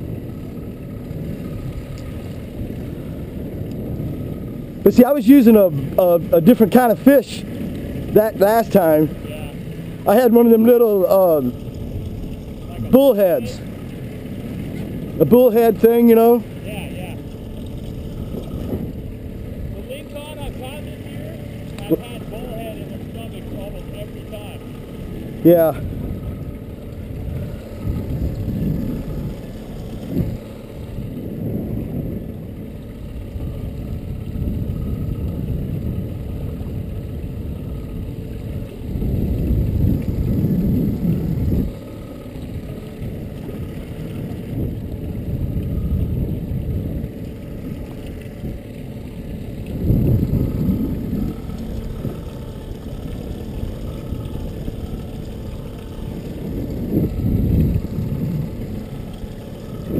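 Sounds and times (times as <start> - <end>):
wind buffeting microphone: 0.0 - 59.9
water lapping against boat hull: 5.5 - 59.9.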